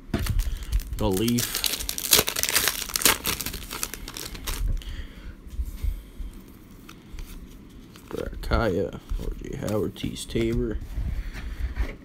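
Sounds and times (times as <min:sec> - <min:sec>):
foil wrapper crinkling: 0:00.2 - 0:04.9.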